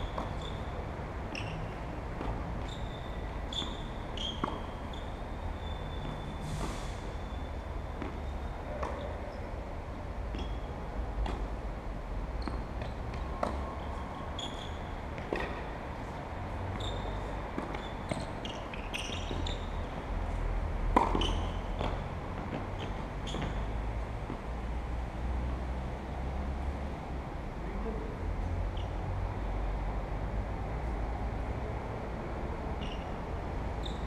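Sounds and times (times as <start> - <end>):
racket striking tennis ball: 0.0 - 0.7, 3.7 - 4.9, 15.1 - 15.8, 20.9 - 23.7
tennis ball bouncing on court: 0.0 - 6.2, 7.9 - 9.4, 10.2 - 11.7, 12.3 - 24.5.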